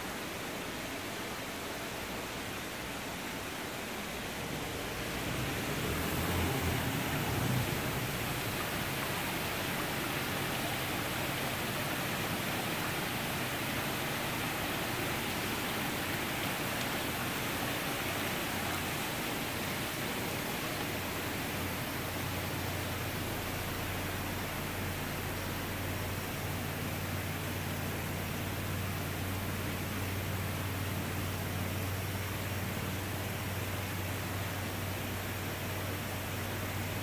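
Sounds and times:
steady rushing noise: 0.0s - 25.5s.

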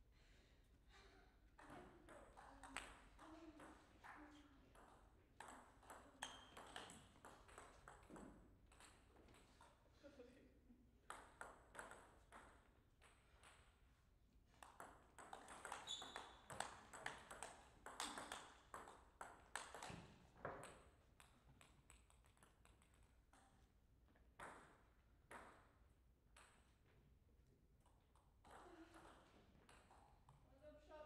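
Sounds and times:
ping pong ball clicking: 4.7s - 9.7s, 11.0s - 13.7s, 14.6s - 23.6s, 24.4s - 26.7s, 27.8s - 30.4s.

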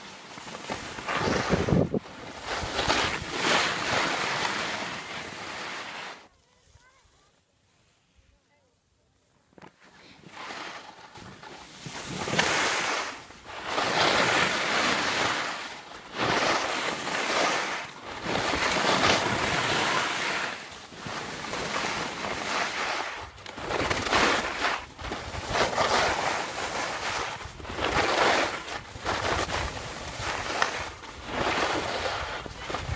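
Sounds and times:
wind buffeting microphone: 1.2s - 2.1s.

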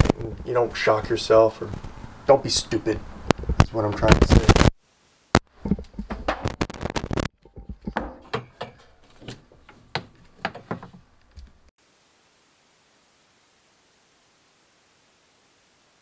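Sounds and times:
clicks and knocks of handling: 7.4s - 11.6s.

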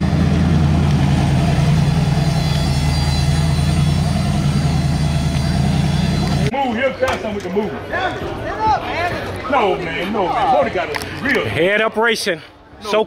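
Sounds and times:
car engine running at low revs: 0.0s - 6.5s.

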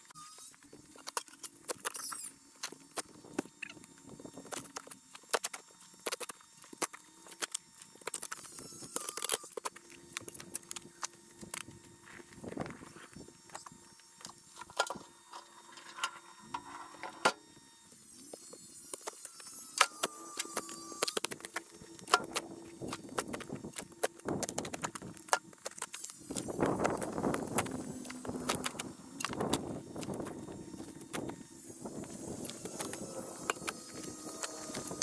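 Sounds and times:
shovel digging soil and stones: 18.2s - 35.0s.

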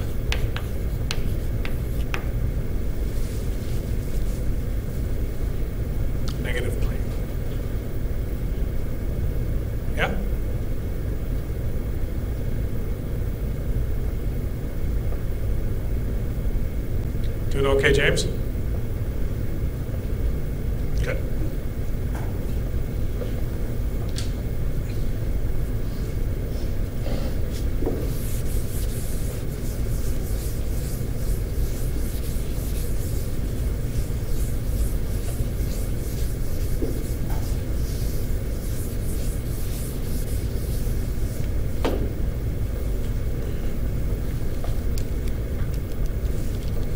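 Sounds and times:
eraser rubbing on blackboard: 0.0s - 2.3s, 27.2s - 41.5s
low room rumble: 0.0s - 46.9s.

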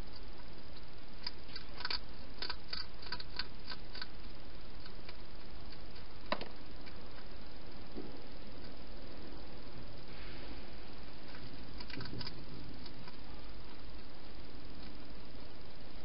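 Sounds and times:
background hiss: 0.0s - 16.0s
hedgehog crunching dry food: 0.1s - 6.2s, 11.2s - 14.1s.

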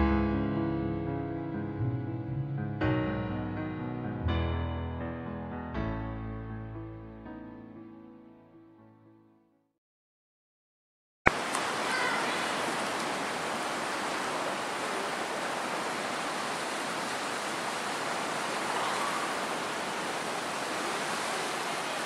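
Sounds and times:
ocean surf breaking on rocks: 11.3s - 22.0s.

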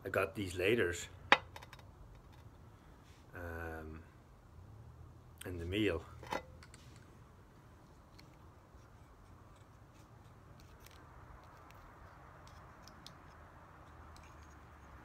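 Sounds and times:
low room hiss: 0.0s - 15.0s
small metal tools clicking: 10.6s - 15.0s.

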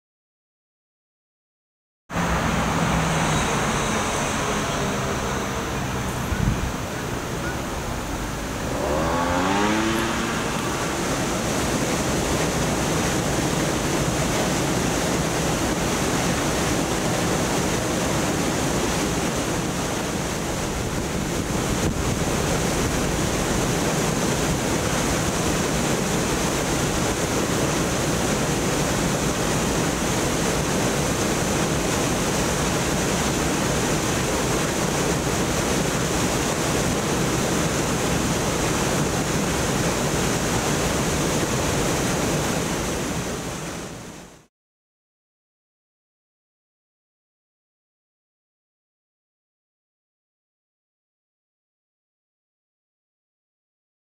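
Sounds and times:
water gushing into river: 2.2s - 44.4s.

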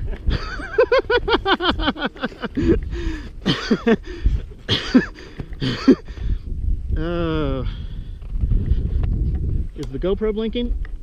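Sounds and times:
person laughing: 0.0s - 6.2s.

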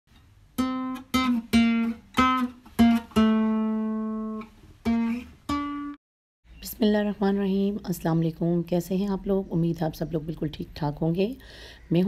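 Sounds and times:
guitar slow plucked melody: 0.2s - 6.0s.

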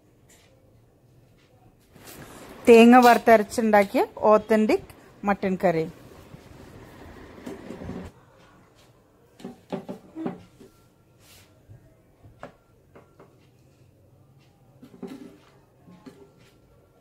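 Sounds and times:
faint kitchen knocks and clicks: 6.1s - 10.9s, 11.7s - 17.0s.

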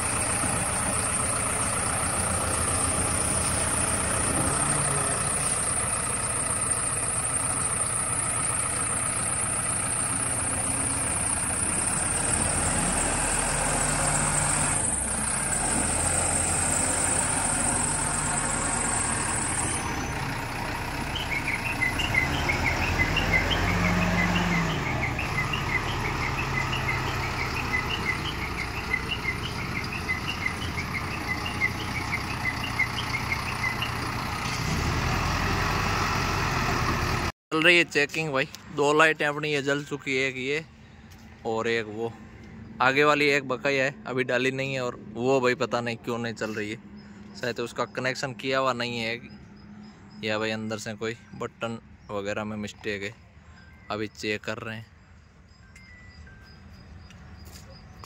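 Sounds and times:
diesel engine idling: 0.0s - 58.0s
high chirping: 16.0s - 34.4s.

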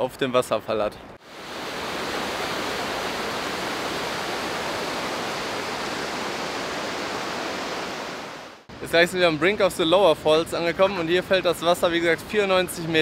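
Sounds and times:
river rushing through rapids: 1.3s - 8.6s.

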